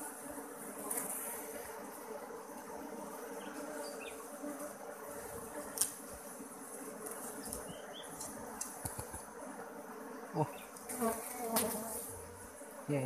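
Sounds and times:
honeybees buzzing: 0.0 - 13.0.

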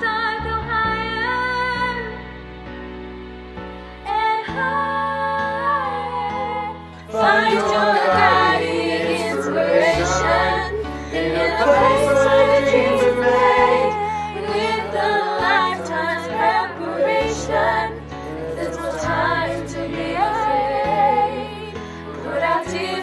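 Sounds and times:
choir singing slow song: 6.3 - 23.0.

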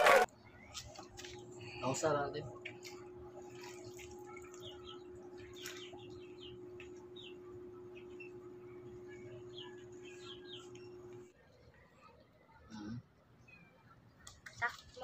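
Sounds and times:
steady low hum: 0.0 - 11.4
small birds chirping: 0.4 - 14.7.

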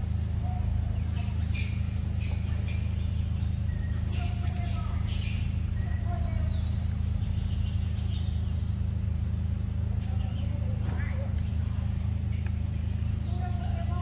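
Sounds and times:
faint bird chirps: 0.0 - 8.8
steady low hum: 0.0 - 14.0.

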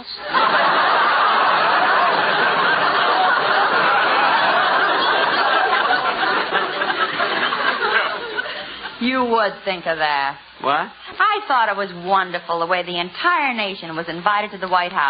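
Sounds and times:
studio audience laughing: 0.0 - 9.0.

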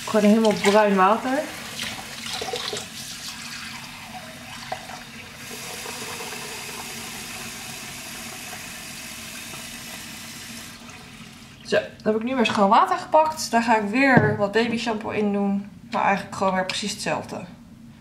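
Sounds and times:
tap water running into bowl: 0.0 - 11.7.

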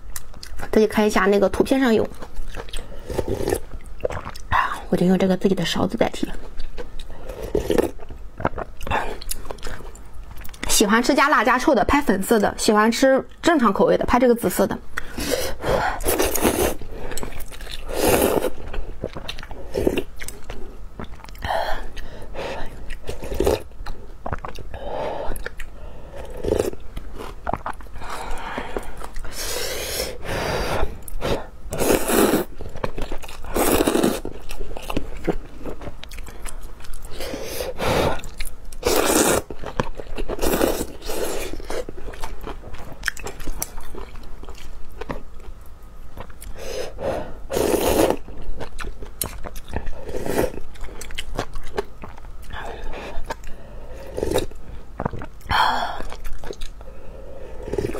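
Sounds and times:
chewing and soft bites: 17.1 - 29.4, 32.5 - 37.2, 39.4 - 46.6, 48.2 - 53.6, 54.4 - 56.9.

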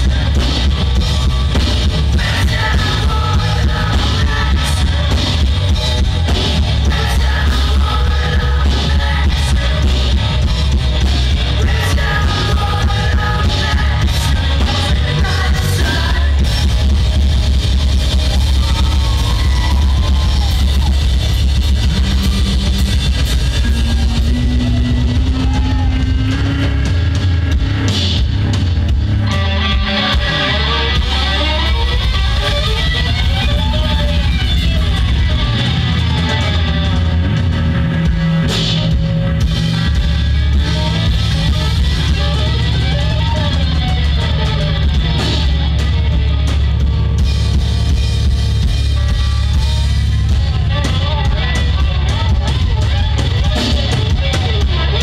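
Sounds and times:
bending guitar melody line: 0.0 - 55.0
rock band playing live: 0.0 - 55.0
person singing into a microphone: 2.0 - 5.7, 6.4 - 10.6, 11.3 - 16.7.

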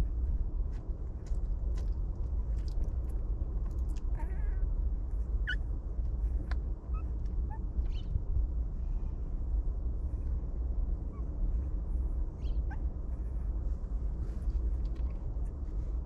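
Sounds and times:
steady low rumble: 0.0 - 16.0
faint puppy squeaks: 4.0 - 5.7, 6.3 - 8.2, 11.0 - 13.6.

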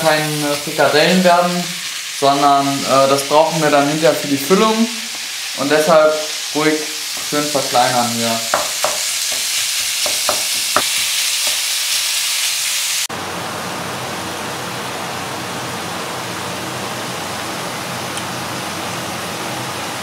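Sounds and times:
meat sizzling in a frying pan: 0.0 - 13.1
spatula knocking against pan: 8.5 - 11.6.

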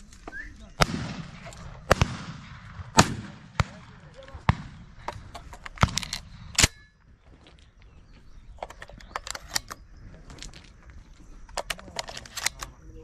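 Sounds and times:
shotgun shot: 0.8 - 5.0
gun handling clicks and rustles: 1.3 - 1.8, 4.1 - 13.0.

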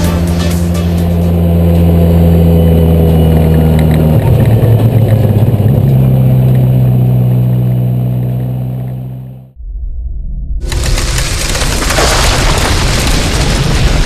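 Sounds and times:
race car engine running hard: 0.0 - 9.6.

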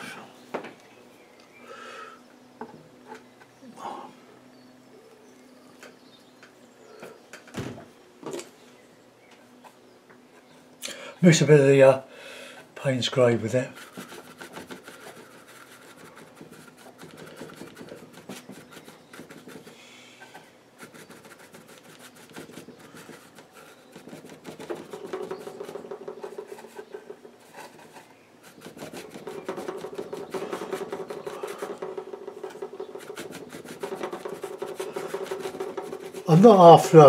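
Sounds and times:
bristle brush scrubbing paint: 12.8 - 37.0.

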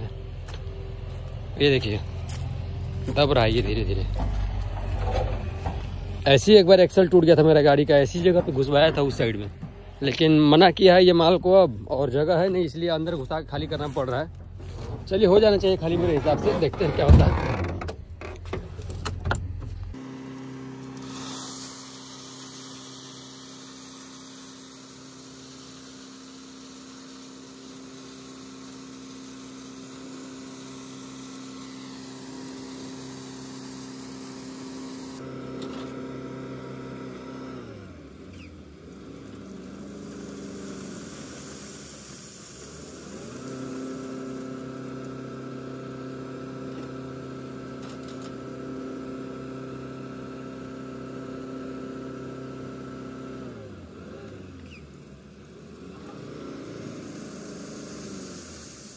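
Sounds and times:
truck diesel engine revving: 52.2 - 58.9.

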